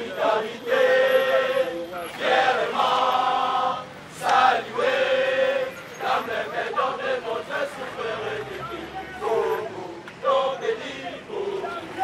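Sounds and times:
crowd chanting in unison: 0:00.0 - 0:12.0.

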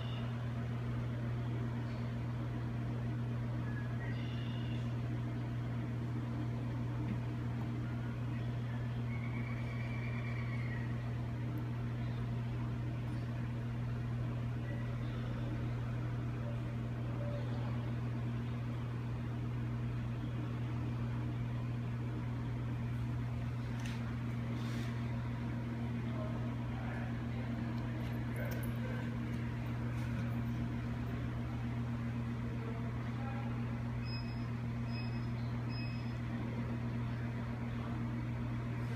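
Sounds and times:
electrical machinery hum: 0:00.0 - 0:38.9.

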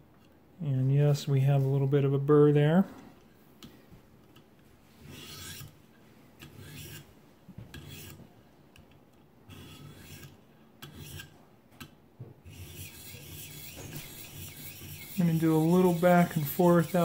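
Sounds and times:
sharpening stone scraping knife edge: 0:05.1 - 0:05.7, 0:06.5 - 0:07.0, 0:07.8 - 0:08.2, 0:09.5 - 0:11.3, 0:12.5 - 0:17.0.

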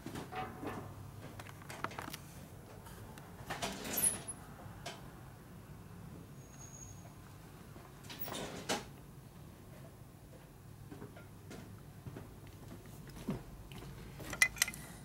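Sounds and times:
brief high squeak: 0:06.4 - 0:07.2.

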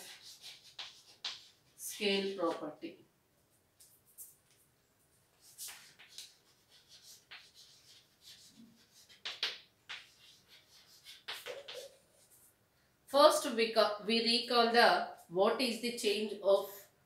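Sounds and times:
chalk scratching on blackboard: 0:00.0 - 0:02.7, 0:05.4 - 0:12.5.

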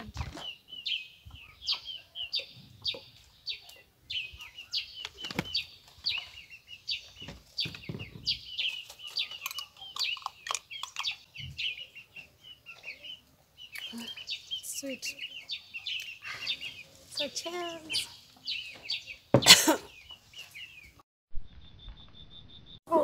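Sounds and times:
birds chirping: 0:00.0 - 0:23.0.

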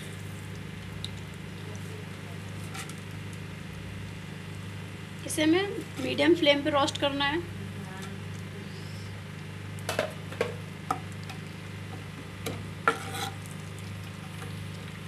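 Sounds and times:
ghee sizzling: 0:00.0 - 0:15.0
steady low hum: 0:00.0 - 0:15.0
spatula scraping a pan: 0:12.8 - 0:13.5.

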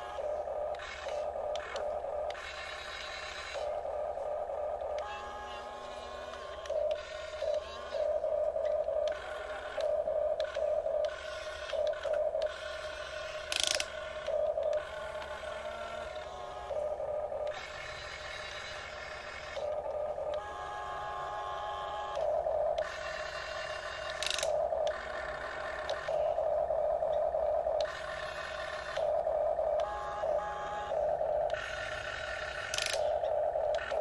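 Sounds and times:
electric gear motors whining: 0:00.0 - 0:34.0
sharp clicks: 0:06.3 - 0:15.4, 0:22.1 - 0:26.2, 0:31.5 - 0:34.0.

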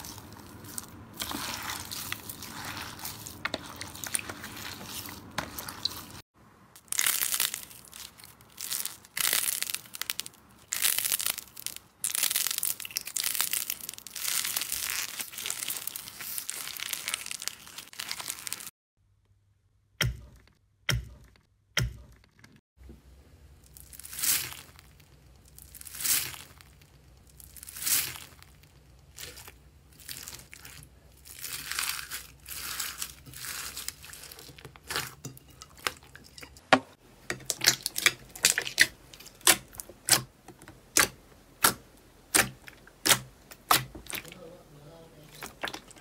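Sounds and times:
slime squelching: 0:00.0 - 0:06.2, 0:06.8 - 0:18.7, 0:23.6 - 0:46.0.

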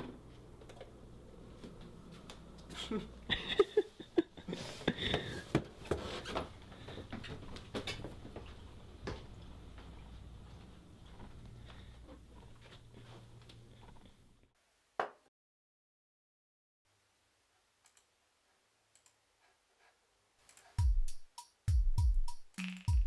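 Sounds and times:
footsteps in a house: 0:00.1 - 0:02.8, 0:04.6 - 0:14.2.

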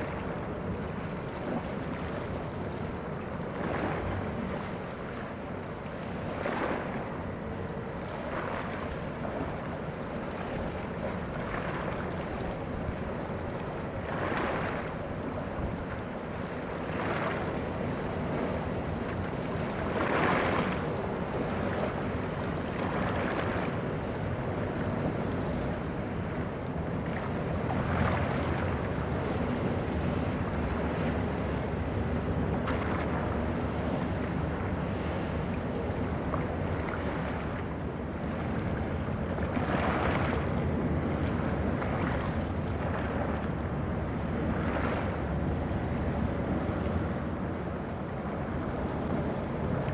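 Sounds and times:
ship drone: 0:00.0 - 0:49.9
water washing against shore: 0:00.0 - 0:49.9
wind buffeting microphone: 0:00.0 - 0:49.9.

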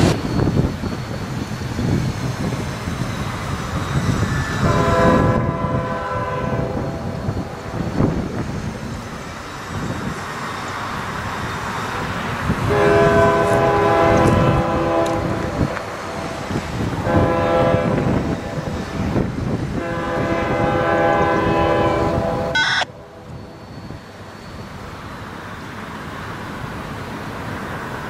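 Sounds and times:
locomotive air horn blasts: 0:04.6 - 0:06.9, 0:12.7 - 0:15.5, 0:17.0 - 0:18.2, 0:19.8 - 0:22.9.

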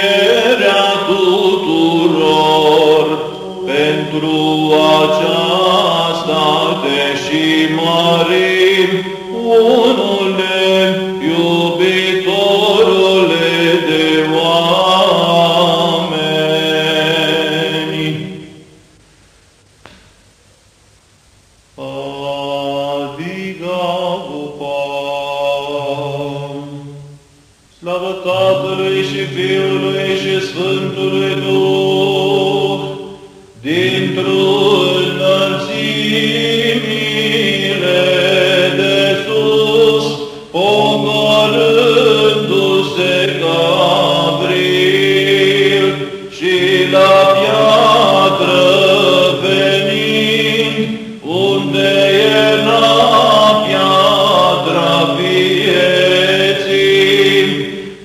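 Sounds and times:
man chanting ornamented phrases: 0:00.0 - 0:18.4, 0:27.8 - 0:58.0
held drone note: 0:28.3 - 0:37.9.

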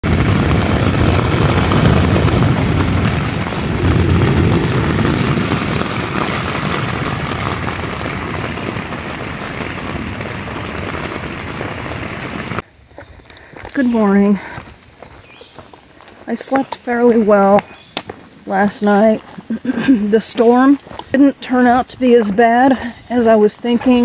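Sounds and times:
heavy rain drumming on tent: 0:00.0 - 0:12.6
low rumble: 0:00.0 - 0:12.6.

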